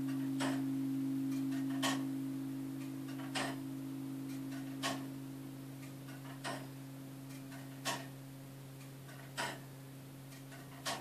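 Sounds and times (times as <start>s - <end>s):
clock ticking: 0.0s - 2.1s, 2.8s - 3.6s, 4.3s - 5.1s, 5.8s - 6.7s, 7.3s - 8.1s
low hum of bell: 0.0s - 8.8s.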